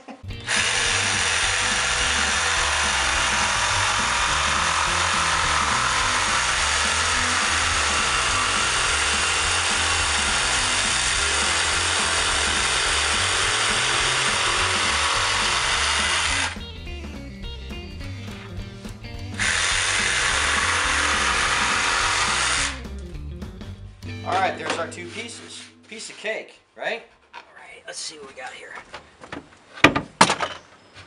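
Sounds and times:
jigsaw cutting plywood: 0.4s - 16.6s, 19.4s - 22.8s.

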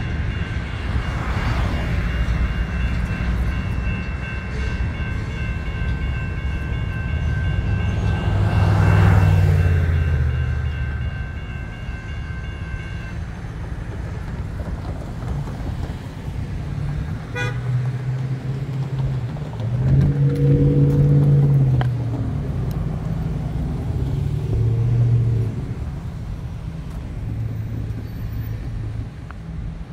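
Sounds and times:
railroad crossing bell ringing: 0.0s - 14.4s
street traffic: 0.0s - 29.9s
wind: 0.0s - 29.9s
low horn-like tone: 20.0s - 21.6s.

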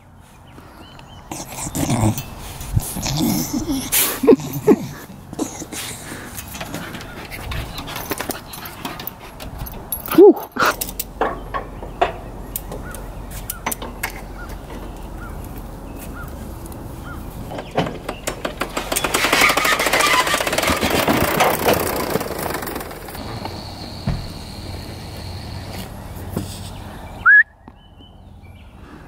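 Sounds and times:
clattering and rattling: 4.5s - 15.7s, 17.1s - 24.4s.

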